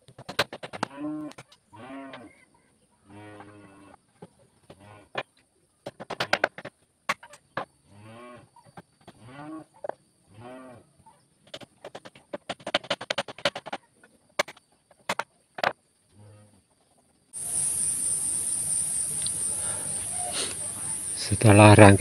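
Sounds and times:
faint insect whine: 0:00.0 - 0:22.0
cow mooing: 0:03.1 - 0:04.0, 0:09.2 - 0:09.7.

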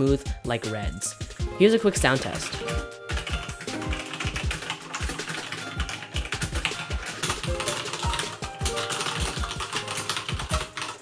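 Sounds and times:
background music: 0:00.0 - 0:11.0
mechanical keyboard typing: 0:02.0 - 0:11.0.

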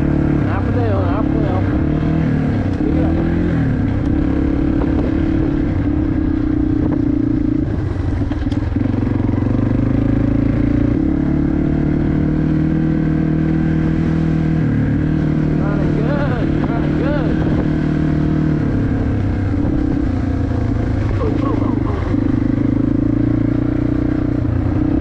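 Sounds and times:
dirt bike engine running: 0:00.0 - 0:25.0.

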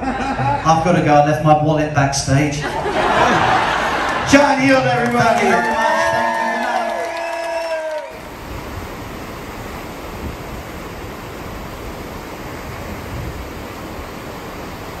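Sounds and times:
audience cheering and whooping: 0:02.7 - 0:08.2
ship's wake churning water: 0:07.9 - 0:15.0.

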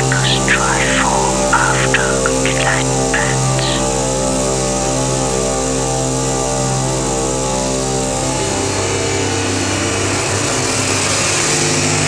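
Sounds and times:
experimental electronic noise music: 0:00.0 - 0:04.0.

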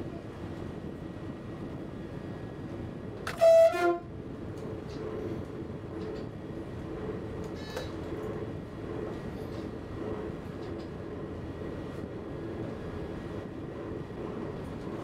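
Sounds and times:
train running on track: 0:00.0 - 0:15.0
train horn two-tone blast: 0:03.3 - 0:04.1.

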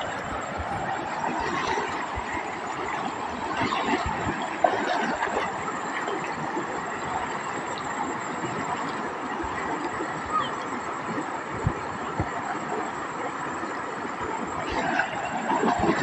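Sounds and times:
river water rushing over rapids: 0:00.0 - 0:16.0.

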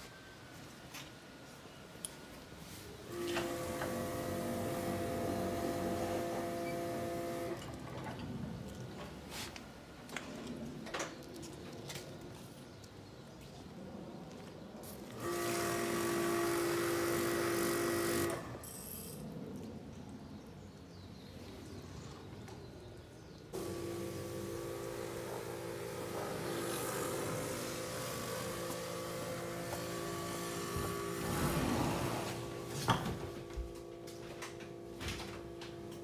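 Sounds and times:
compressed air blow gun hissing: 0:23.6 - 0:32.6.

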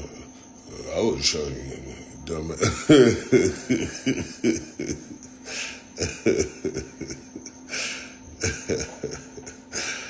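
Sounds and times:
man laughing: 0:02.6 - 0:10.0.

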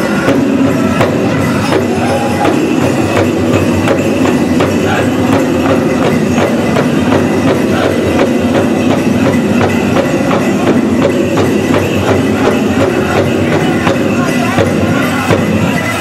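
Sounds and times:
drum beating steady rhythm: 0:00.0 - 0:16.0
leg bells jingling: 0:00.0 - 0:16.0.

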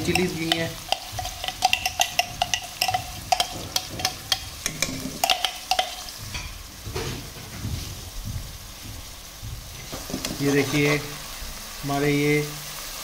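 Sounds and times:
spoon clinking and scraping pan: 0:00.0 - 0:06.6, 0:10.0 - 0:11.2
vegetables sizzling in oil: 0:00.0 - 0:13.0.

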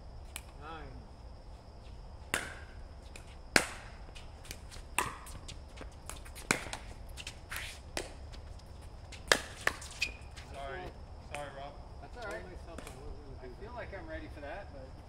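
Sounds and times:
paddles hitting plastic ball: 0:02.3 - 0:08.2, 0:09.1 - 0:10.0.

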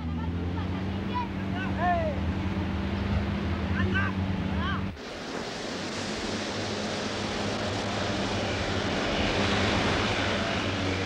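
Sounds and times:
wind: 0:00.0 - 0:11.0
water rushing: 0:05.0 - 0:11.0.

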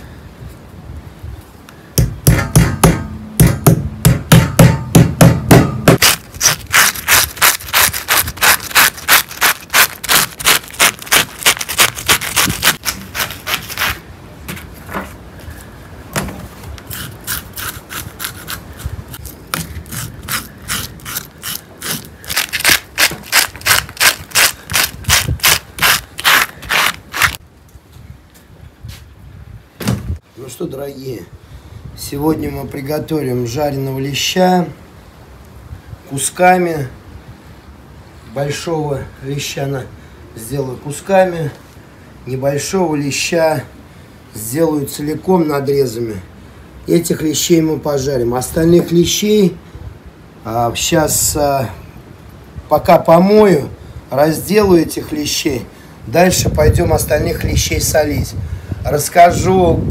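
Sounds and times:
fish scaler scraping scales: 0:06.0 - 0:14.0, 0:16.9 - 0:27.4.

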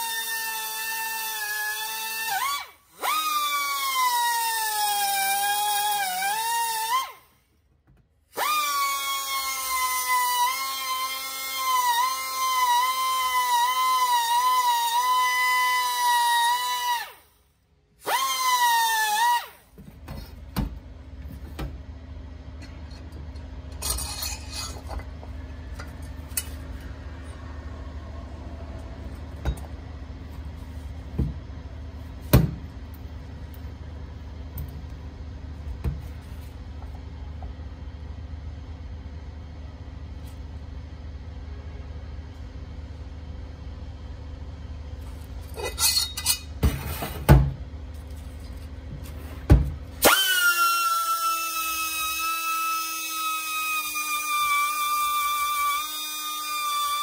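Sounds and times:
low hum: 0:19.8 - 0:50.0
rotary grinder whine: 0:50.0 - 0:57.0.

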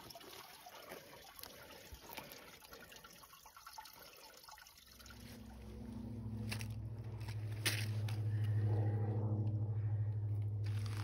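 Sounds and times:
creek water trickling: 0:00.0 - 0:08.4
low steady hum: 0:00.1 - 0:11.0.

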